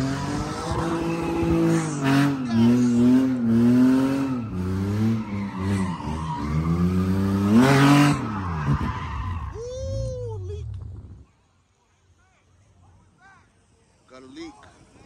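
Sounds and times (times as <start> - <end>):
car engine revving high: 0.0 - 9.1
tires screeching: 0.0 - 10.3.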